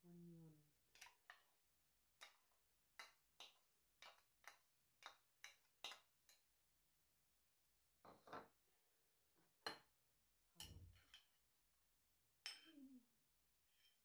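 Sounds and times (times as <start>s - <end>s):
metal spoon tapping a bowl: 12.4s - 12.7s.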